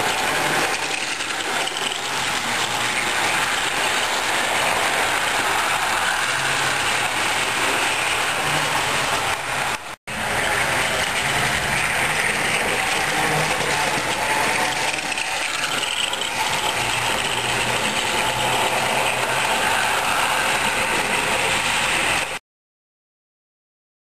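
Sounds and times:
model train motor whirring: 0:00.0 - 0:22.4
wheels rolling on rails: 0:00.0 - 0:22.4.

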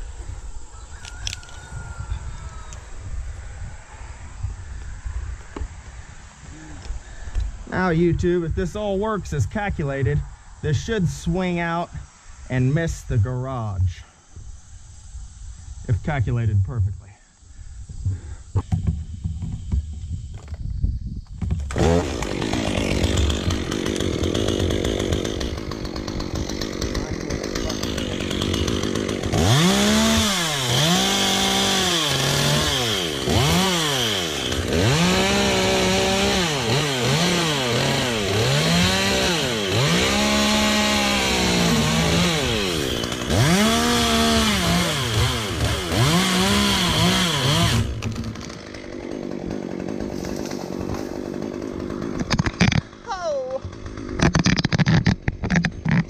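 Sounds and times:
chainsaw revving and cutting: 0:21.6 - 0:56.0.

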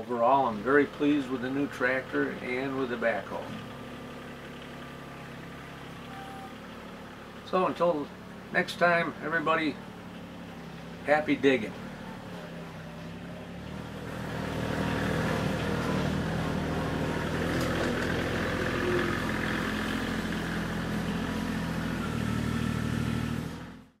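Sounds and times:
diesel tractor engine running: 0:00.0 - 0:24.0.

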